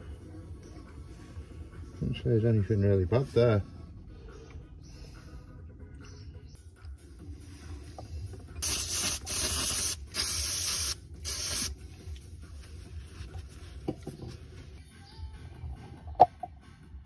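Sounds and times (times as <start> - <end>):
aerosol spray hissing: 8.6 - 11.8.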